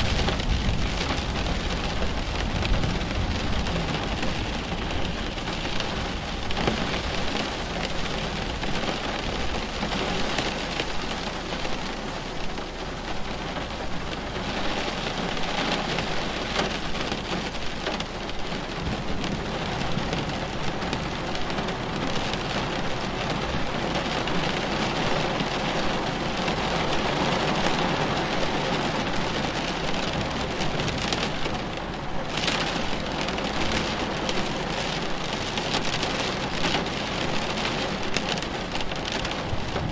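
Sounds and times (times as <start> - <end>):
low thunder rumble: 0.0 - 8.7, 18.7 - 23.7, 39.3 - 39.9
steady rain patter: 0.0 - 39.9.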